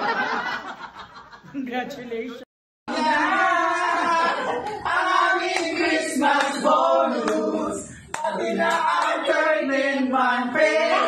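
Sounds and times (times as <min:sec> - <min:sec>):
people singing together: 0:02.9 - 0:11.0
sharp claps: 0:08.1 - 0:09.2.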